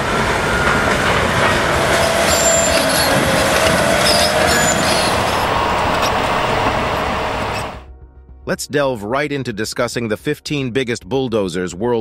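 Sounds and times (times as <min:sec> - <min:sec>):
steel tracks clattering: 0:00.0 - 0:07.8
diesel engine running: 0:00.0 - 0:07.9
high squeals from undercarriage: 0:00.4 - 0:07.8.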